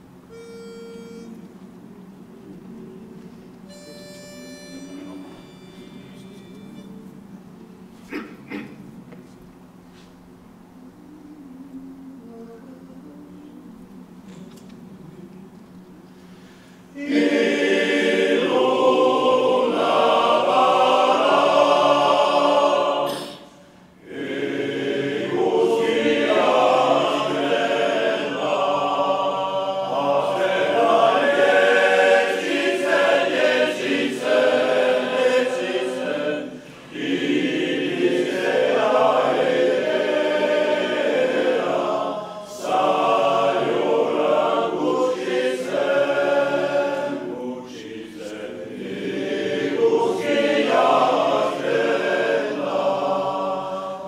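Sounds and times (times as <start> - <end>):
male choir singing a cappella: 16.4 - 54.0.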